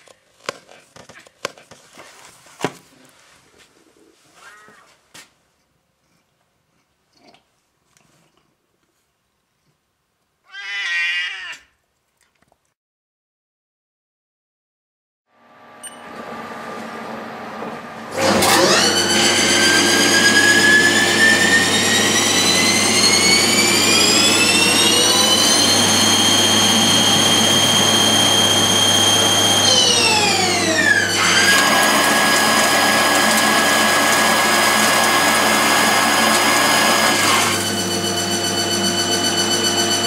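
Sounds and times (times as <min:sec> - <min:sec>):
lathe spindle whine: 0:17.4 - 0:40.0.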